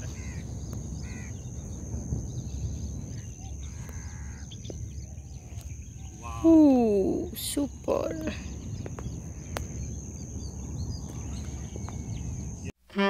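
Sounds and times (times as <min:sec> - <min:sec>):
low rumble: 0:00.0 - 0:12.7
bird chirps: 0:08.1 - 0:12.7.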